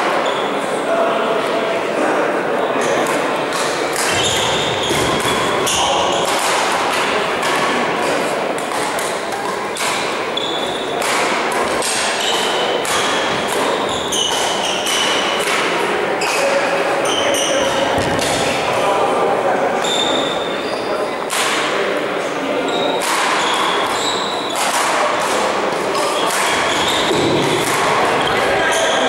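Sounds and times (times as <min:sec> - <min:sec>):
shoe squeaks on floor: 0:00.2 - 0:00.6, 0:03.5 - 0:06.4, 0:09.7 - 0:11.1, 0:11.8 - 0:15.4, 0:16.2 - 0:18.1, 0:19.8 - 0:21.2, 0:22.6 - 0:24.8, 0:26.0 - 0:29.0
racket striking shuttlecock: 0:03.0 - 0:16.4, 0:21.2 - 0:21.7, 0:23.0 - 0:28.5.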